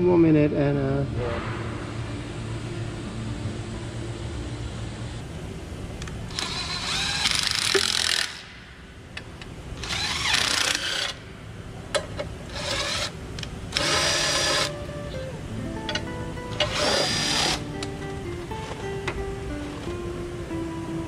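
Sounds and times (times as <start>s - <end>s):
low steady hum: 0.0s - 21.0s
cordless driver whirring: 6.3s - 8.5s, 9.8s - 11.2s, 12.5s - 14.8s, 16.5s - 17.6s.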